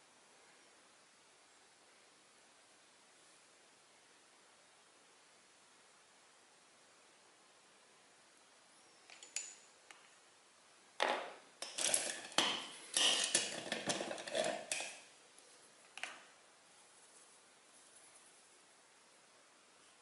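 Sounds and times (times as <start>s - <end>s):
paintbrushes clattering: 11.0s - 15.1s.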